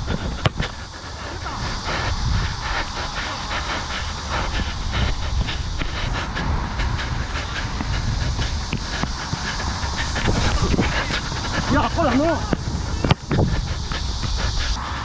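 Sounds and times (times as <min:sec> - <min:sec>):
running footfall thuds: 0:00.0 - 0:00.9, 0:06.9 - 0:14.8
wind rumbling on microphone: 0:00.0 - 0:15.0.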